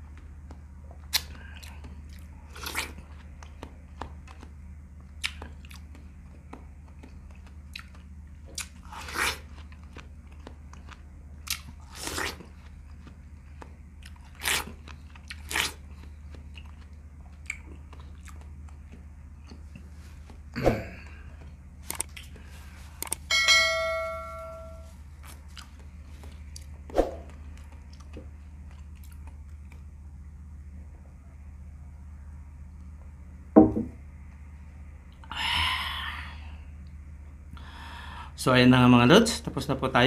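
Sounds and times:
chewing watermelon crunches: 0.1s - 23.2s, 25.0s - 30.0s
low hum: 9.4s - 38.3s.

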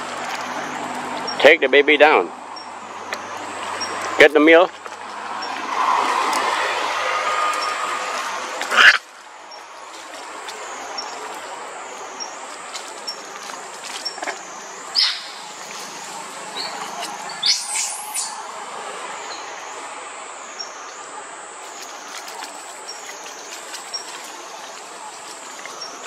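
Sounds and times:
high-pitched animal chirps: 15.0s - 15.4s, 16.6s - 18.4s.

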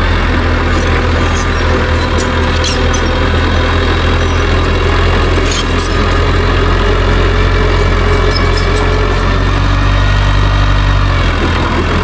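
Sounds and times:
bulldozer diesel engine running: 0.0s - 12.0s
metallic squeaks from steel tracks: 0.2s - 9.3s.

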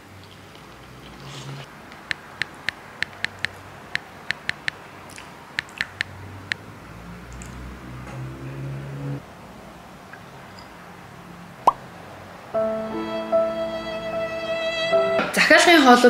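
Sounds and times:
smartphone keyboard clicks: 1.9s - 6.6s.

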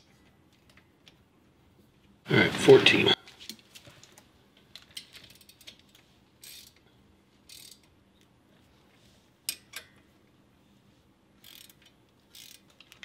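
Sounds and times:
ratchet wrench clicking: 5.0s - 5.8s, 6.4s - 6.8s, 7.4s - 7.9s, 11.4s - 13.0s.

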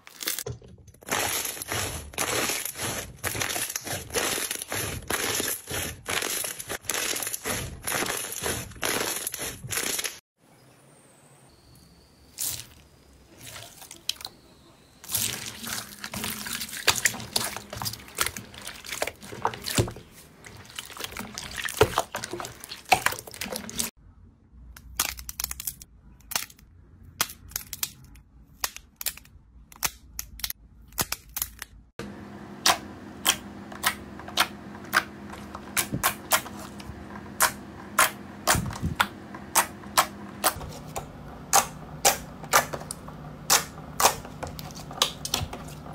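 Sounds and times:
crackling and squelching: 0.0s - 10.2s, 12.3s - 24.0s
hand squishing wet gel beads: 15.1s - 23.9s.

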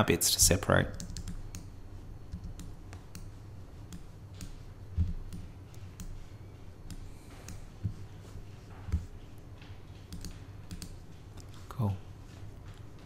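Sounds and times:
mouse and keyboard clicking: 0.9s - 1.7s, 10.0s - 11.6s.

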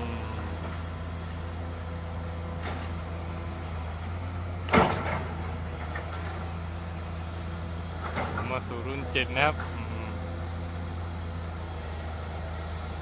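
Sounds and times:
excavator diesel engine running: 0.0s - 13.0s
excavator bucket clunk: 4.6s - 6.6s, 8.0s - 8.7s.

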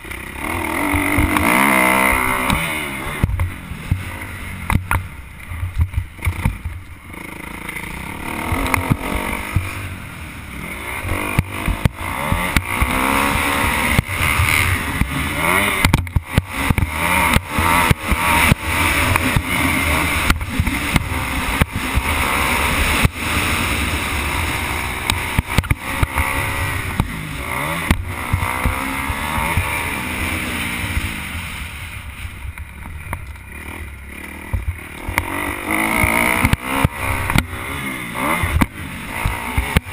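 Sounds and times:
motocross bike engine revving: 0.0s - 39.9s.

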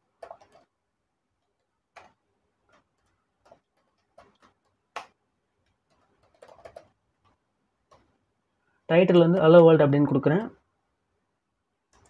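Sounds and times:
keyboard keys clicking: 5.8s - 6.9s.

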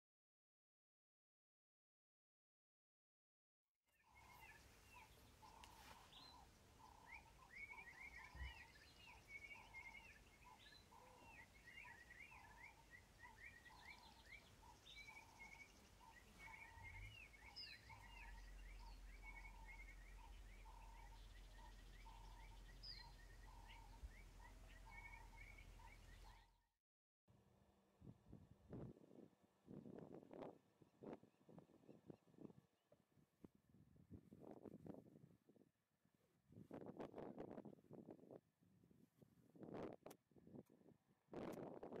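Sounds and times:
birds chirping: 4.0s - 26.7s.

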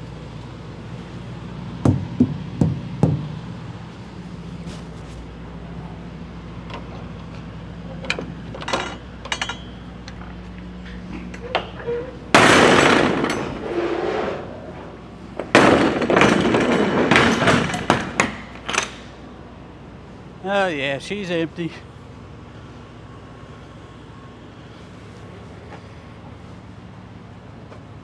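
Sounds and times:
low engine hum: 0.0s - 15.7s
metal doors rattling and banging: 11.1s - 19.3s.

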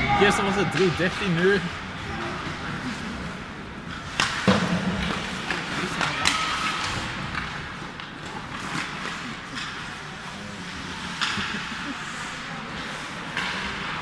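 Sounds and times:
skate blades scraping ice: 0.7s - 14.0s
sticks striking puck: 4.0s - 10.0s.

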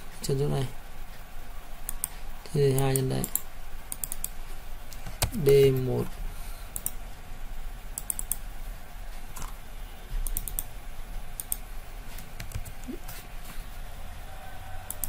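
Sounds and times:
steady low hum: 0.0s - 15.0s
keyboard and mouse clicking: 1.9s - 5.8s, 6.7s - 7.0s, 8.0s - 8.4s, 10.2s - 10.7s, 11.4s - 11.6s, 12.2s - 13.0s.

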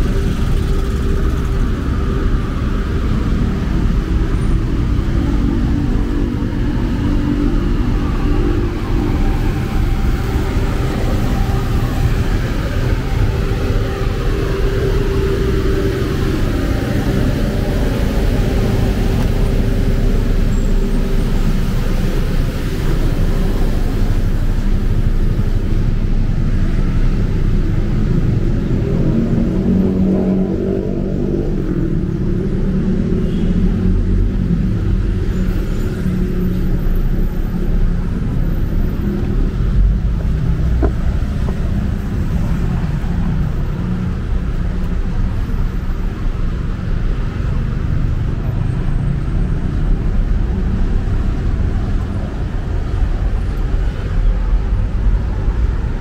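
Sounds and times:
passing vehicle engine: 0.0s - 56.0s
road traffic: 0.0s - 56.0s.

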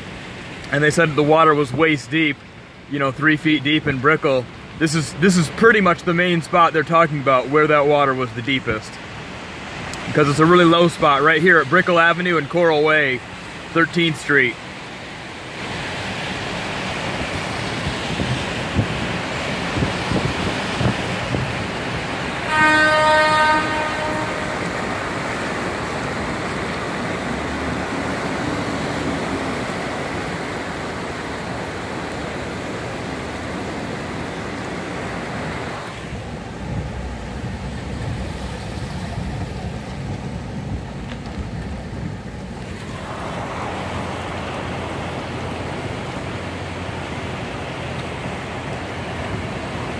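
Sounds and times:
car tyres splashing through water: 0.0s - 49.9s
vehicle horn: 22.4s - 24.9s.

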